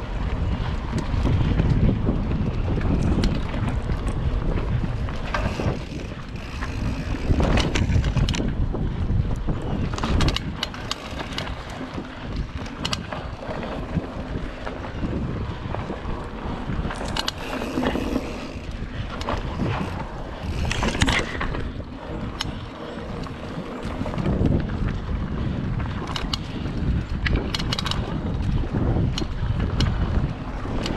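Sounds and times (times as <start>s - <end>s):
bike rattling and knocking: 0.0s - 30.9s
bike tyres rumbling on dirt: 0.0s - 30.9s
wind buffeting microphone: 0.0s - 30.9s.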